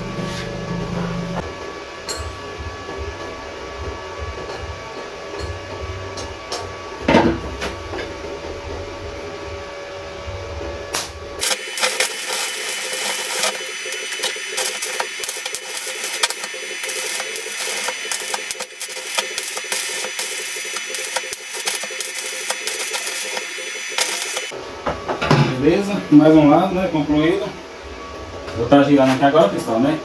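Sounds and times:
welding arc crackling: 11.4s - 24.6s.

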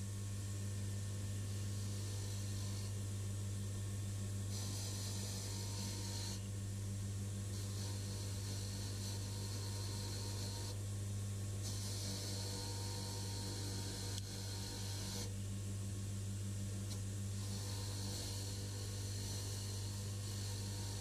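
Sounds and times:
belt grinder motor hum: 4.5s - 6.4s, 7.5s - 10.8s, 11.6s - 15.3s, 17.4s - 21.0s.

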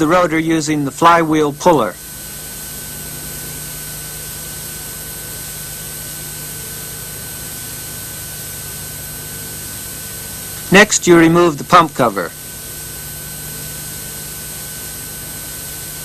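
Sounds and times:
recording hiss: 10.3s - 12.4s.

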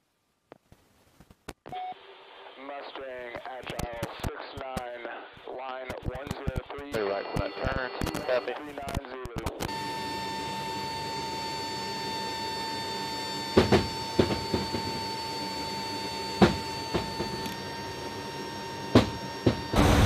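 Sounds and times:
aircraft high-pitched whine: 9.7s - 20.0s.

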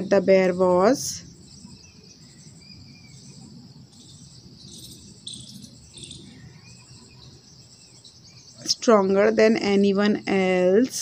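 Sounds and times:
crickets chirping: 0.5s - 8.9s.

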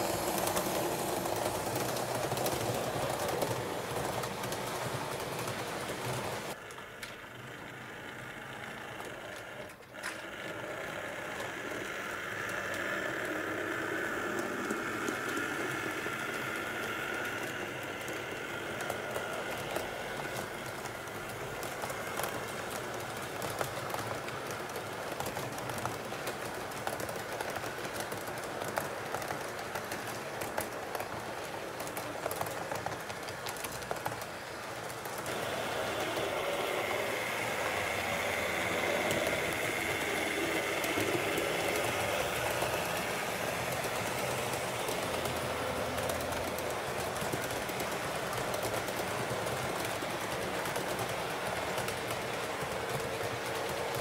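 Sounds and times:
wheels clicking over rail joints: 0.0s - 54.0s
small electric motor whirring: 35.2s - 46.7s.

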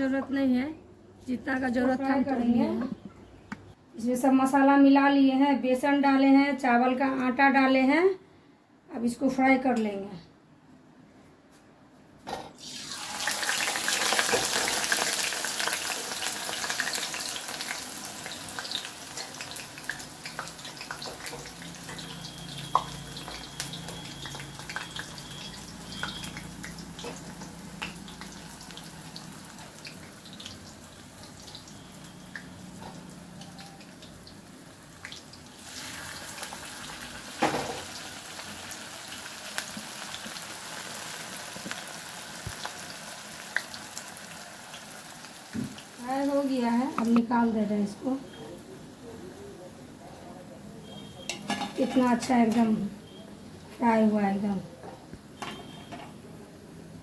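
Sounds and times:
food deep-frying in oil: 12.6s - 48.6s, 55.2s - 56.1s.

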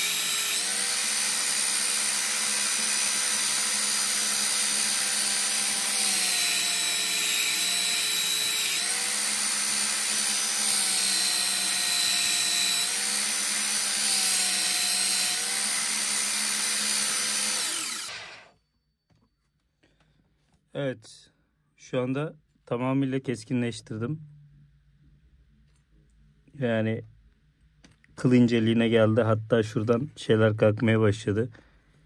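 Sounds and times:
belt sander grinding steel blade: 0.0s - 18.5s.

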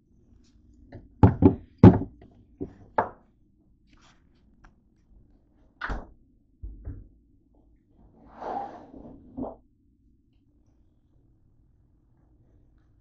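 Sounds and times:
hard knocks and thuds: 1.2s - 2.8s.

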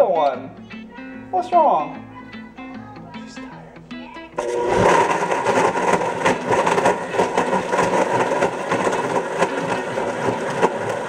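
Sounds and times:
blender motor whining: 4.4s - 11.0s
ice churning in blender: 4.4s - 11.0s.

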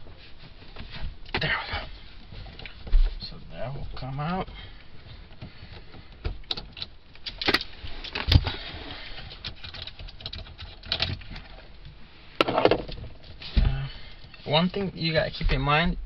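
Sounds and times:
metallic clicks and rattles: 6.3s - 8.4s, 9.3s - 11.6s.

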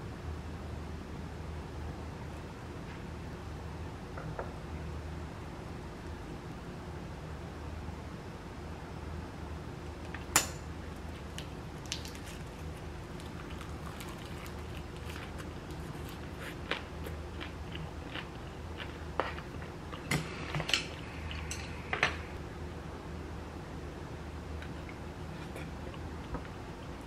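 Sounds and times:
soft chewing: 11.0s - 20.1s, 24.6s - 27.0s.

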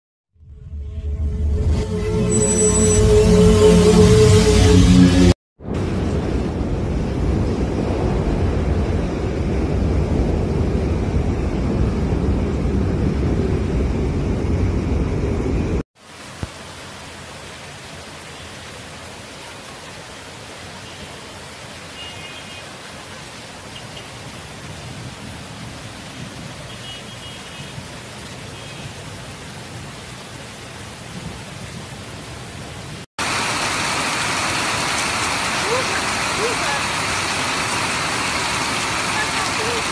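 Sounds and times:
deep steady rumble: 0.4s - 15.8s
heavy rain downpour: 5.6s - 13.8s, 16.0s - 39.9s.

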